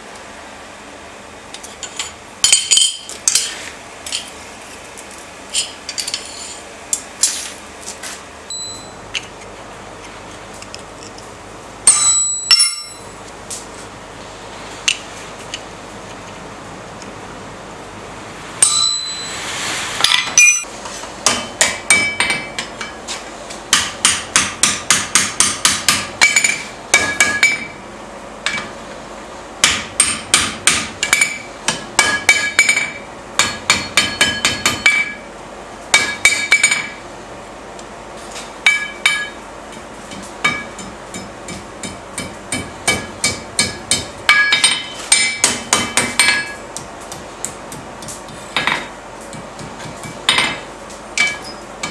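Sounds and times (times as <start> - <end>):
hammer striking steel on anvil: 11.8 - 13.1, 18.6 - 19.3, 20.0 - 23.0, 23.7 - 27.8, 29.6 - 35.3, 35.9 - 37.0, 38.6 - 51.9.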